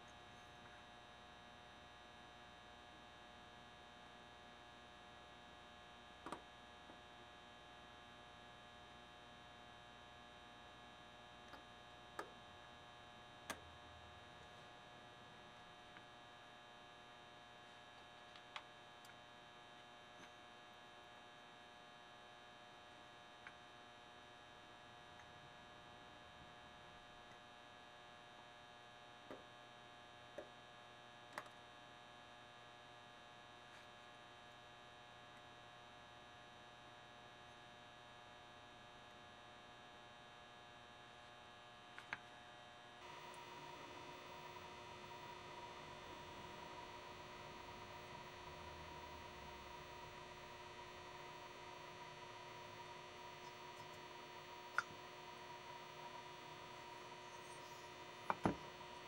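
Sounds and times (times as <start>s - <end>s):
steady electrical hum: 42.9s - 59.0s.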